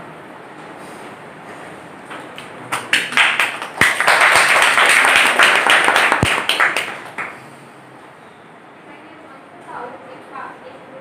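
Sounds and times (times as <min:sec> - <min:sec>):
audience applauding: 0:02.3 - 0:07.4.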